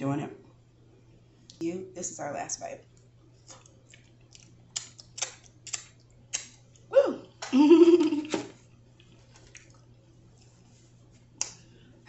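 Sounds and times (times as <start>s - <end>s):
wet lip smacks: 3.5s - 6.6s
person exclaiming woo: 6.9s - 7.2s.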